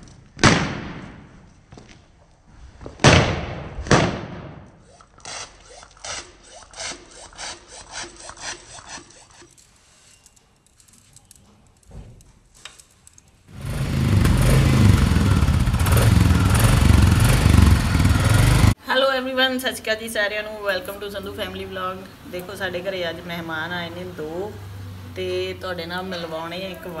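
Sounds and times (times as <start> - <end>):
rhythmic rubbing strokes: 4.8 - 10.3
motorcycle engine running: 13.5 - 18.8.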